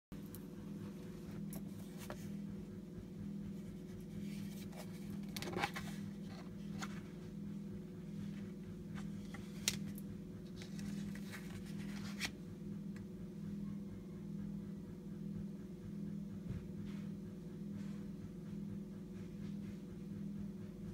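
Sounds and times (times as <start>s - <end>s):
steady low hum: 0.1s - 20.9s
cardboard rubbing and rustling: 3.5s - 7.2s, 10.5s - 12.4s.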